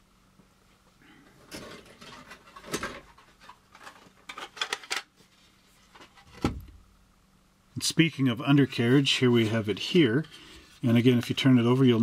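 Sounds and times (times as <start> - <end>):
plastic parts rustling: 1.4 - 5.2
plastic clicks and clatter: 1.5 - 5.1.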